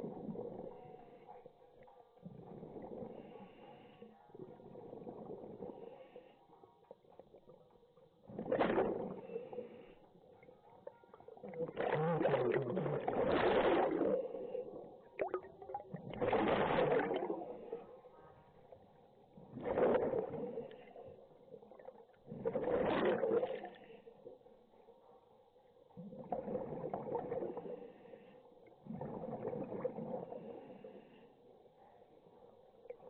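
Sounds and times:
underwater bubbling breaths: 0:02.2 - 0:06.5, 0:08.3 - 0:10.3, 0:11.4 - 0:18.2, 0:19.4 - 0:24.3, 0:26.1 - 0:31.4.

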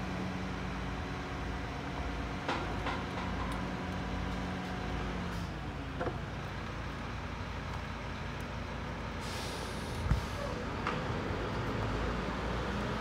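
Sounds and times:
garbage truck engine rumble: 0:00.0 - 0:13.0
air hiss: 0:09.2 - 0:10.6.

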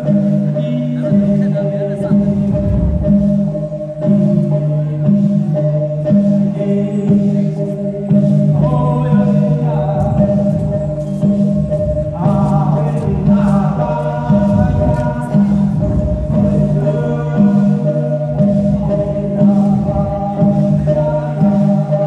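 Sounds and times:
repeating bass line: 0:00.0 - 0:22.0
group of voices singing: 0:06.5 - 0:22.0.

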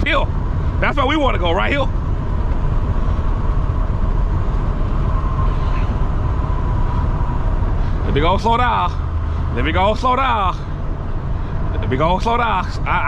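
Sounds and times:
truck diesel engine rumble: 0:00.0 - 0:13.0.

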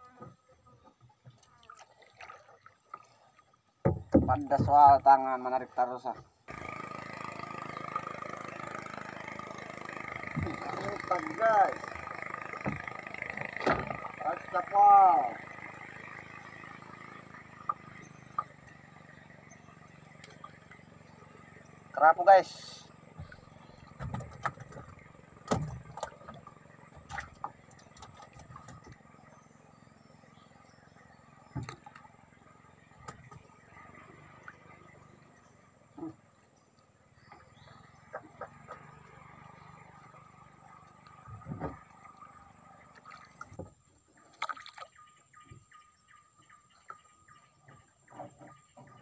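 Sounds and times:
water dripping and splashing: 0:01.3 - 0:03.6, 0:17.4 - 0:21.8, 0:23.1 - 0:29.2, 0:36.6 - 0:45.0
knocks on wooden deck: 0:03.8 - 0:05.0
knocks on wooden hull: 0:03.8 - 0:05.2, 0:12.6 - 0:13.0, 0:23.2 - 0:29.1.

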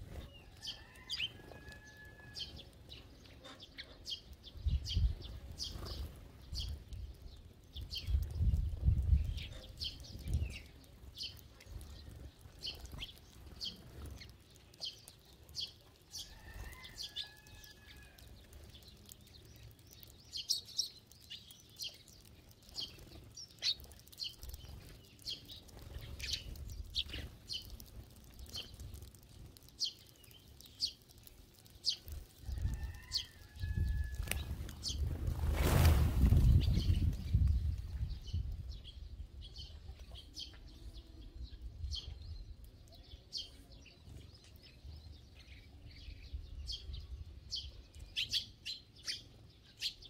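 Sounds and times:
sparrows chirping: 0:00.0 - 0:50.0
wings flapping: 0:32.1 - 0:37.3.

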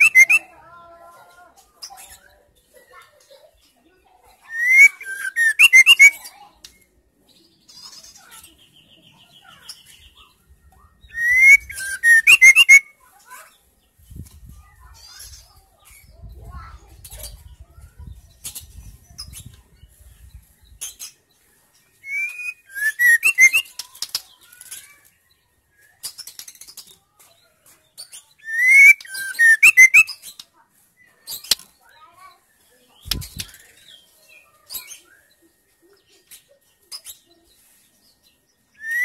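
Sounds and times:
short high chirps: 0:00.0 - 0:00.4, 0:11.1 - 0:12.8, 0:22.1 - 0:23.7
bird singing: 0:00.0 - 0:00.5, 0:04.4 - 0:06.3, 0:11.0 - 0:12.9, 0:22.0 - 0:24.8, 0:28.1 - 0:30.3, 0:38.4 - 0:39.0.

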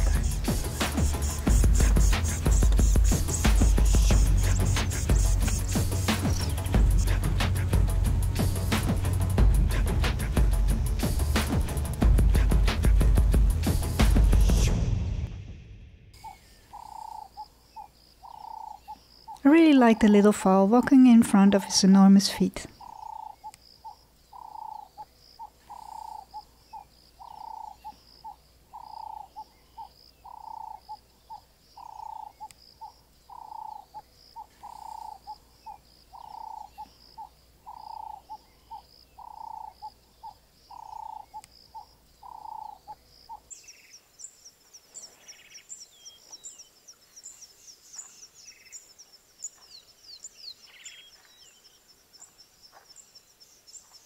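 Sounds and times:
bird calling: 0:00.0 - 0:07.8, 0:16.2 - 0:53.0
rapid high chirps: 0:00.0 - 0:13.0.

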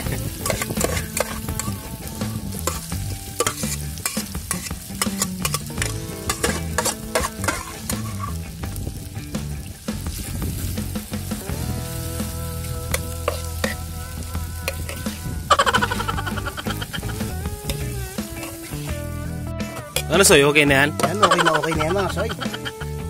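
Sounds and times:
metal spatula scraping a pan: 0:00.0 - 0:01.8, 0:02.6 - 0:08.4, 0:12.9 - 0:13.9, 0:14.6 - 0:19.0
food sizzling in a hot pan: 0:00.0 - 0:23.0
spatula clinking against pan: 0:00.4 - 0:01.7, 0:02.6 - 0:08.2.

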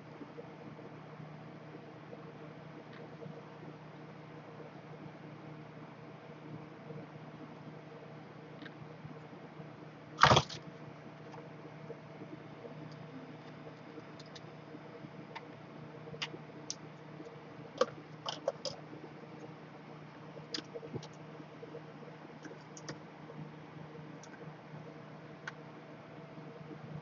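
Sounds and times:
steady low hum: 0:00.0 - 0:27.0
small clicks and taps: 0:22.4 - 0:23.0.

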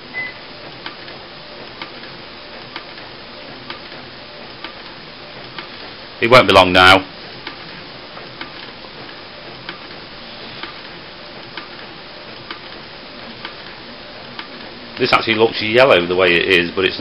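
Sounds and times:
inkjet printer printing: 0:00.0 - 0:17.0.

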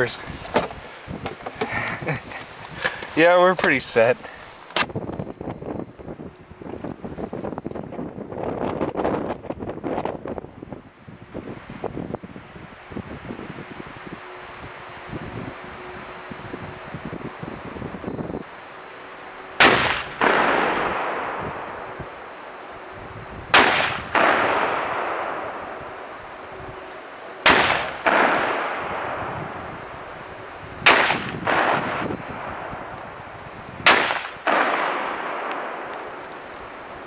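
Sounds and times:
gunshots with rolling echo: 0:19.6 - 0:22.0, 0:23.5 - 0:26.1, 0:27.4 - 0:29.8, 0:30.8 - 0:32.9, 0:33.8 - 0:36.2.

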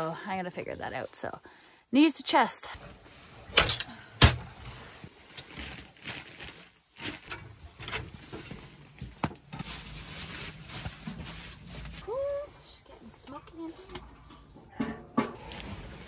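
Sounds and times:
kindling and paper rustling: 0:04.7 - 0:12.2.

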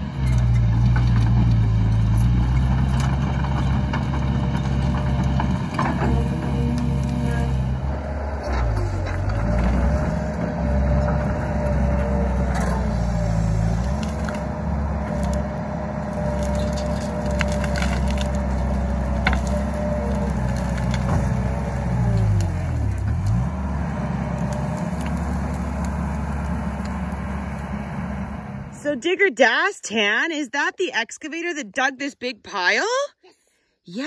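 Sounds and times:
excavator diesel engine: 0:00.0 - 0:29.1
branches snapping and crackling: 0:08.6 - 0:28.0.

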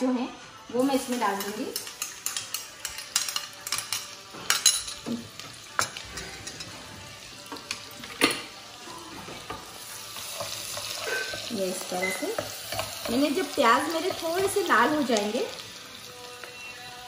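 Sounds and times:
onion sizzling in hot oil: 0:05.0 - 0:17.0.

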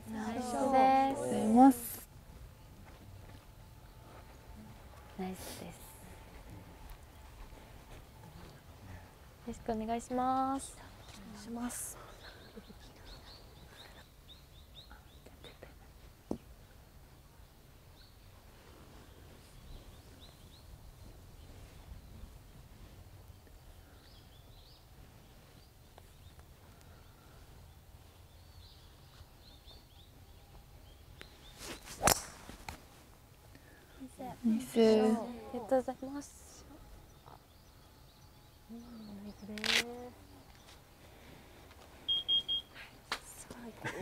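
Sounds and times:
outdoor background noise: 0:00.0 - 0:44.0
faint bird chirps: 0:10.8 - 0:16.1
golf club swish: 0:31.6 - 0:32.8
golf club striking ball: 0:32.0 - 0:32.8
bird chirping: 0:36.8 - 0:41.1.

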